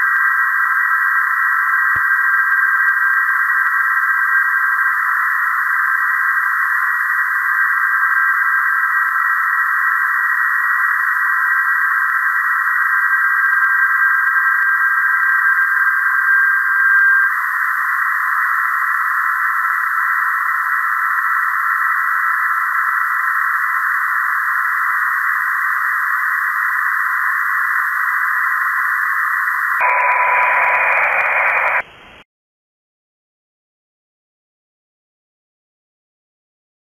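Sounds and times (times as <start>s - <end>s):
steady digital signal tones: 29.2s - 31.8s
radio static hiss: 29.3s - 32.2s
low radio tone: 29.4s - 31.9s.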